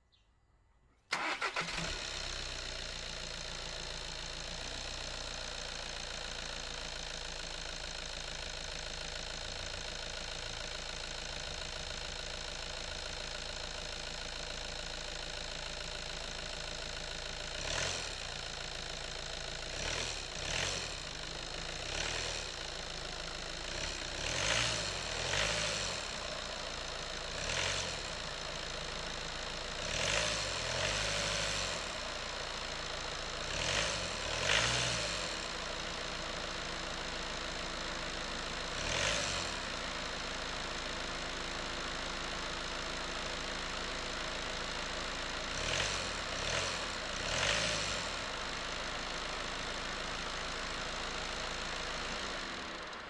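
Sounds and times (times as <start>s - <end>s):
diesel engine idling with clatter: 1.1s - 53.0s
engine revving in blips: 23.8s - 26.1s, 29.8s - 31.8s, 33.5s - 35.3s, 45.6s - 48.1s.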